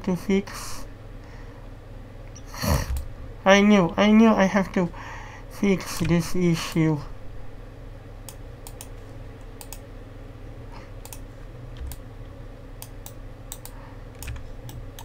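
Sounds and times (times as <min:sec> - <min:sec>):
low steady hum: 0:00.0 - 0:15.0
keyboard and mouse clicks: 0:08.2 - 0:09.0, 0:09.6 - 0:09.8, 0:11.0 - 0:12.0, 0:12.8 - 0:15.0.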